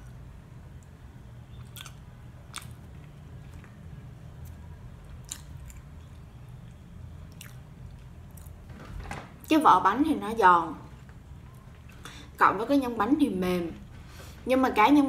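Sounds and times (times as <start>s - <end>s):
steady low hum: 0.0s - 15.0s
person chewing crunchy food: 1.5s - 8.6s.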